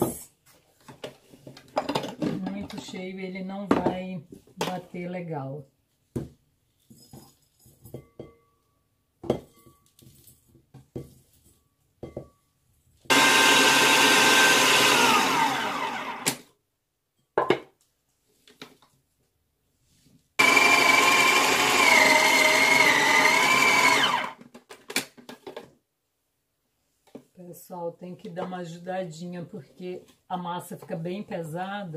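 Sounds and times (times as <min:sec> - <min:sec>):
food processor motor chopping: 0:13.1 - 0:16.4, 0:20.4 - 0:24.4.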